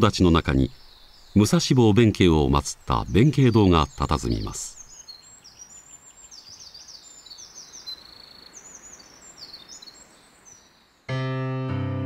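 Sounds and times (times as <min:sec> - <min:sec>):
birds chirping: 0:00.0 - 0:11.1
faint outdoor ambience: 0:00.0 - 0:11.5.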